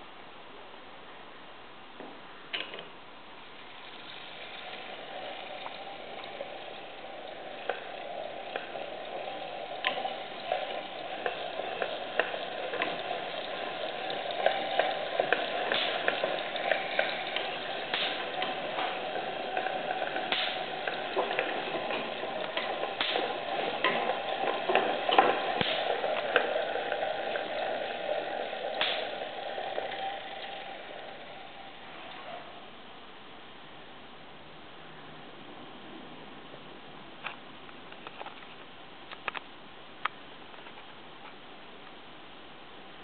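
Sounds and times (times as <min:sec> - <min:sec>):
electrostatic generator whirring: 0:03.6 - 0:32.2
electric sparks crackling: 0:14.4 - 0:30.2.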